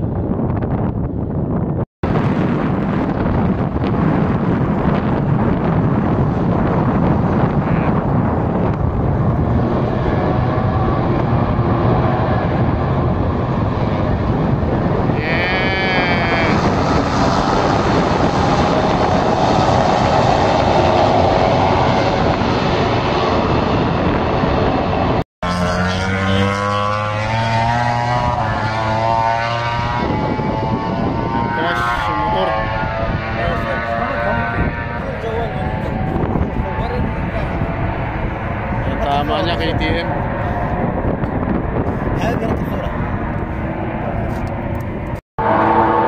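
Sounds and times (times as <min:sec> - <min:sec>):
racing motorcycles passing at high revs: 0:04.3 - 0:46.0
steady engine note rising in pitch: 0:06.0 - 0:46.0.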